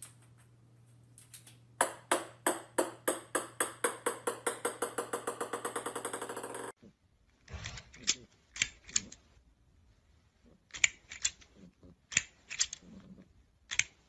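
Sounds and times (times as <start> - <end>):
ping-pong ball bouncing on wooden floor: 1.8 - 6.8.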